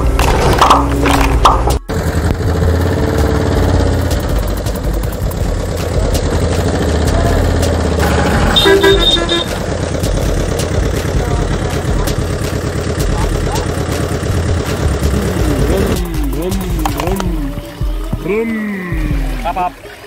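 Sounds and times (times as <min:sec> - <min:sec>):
truck engine running: 0:00.0 - 0:19.7
truck horn honking: 0:08.0 - 0:09.9.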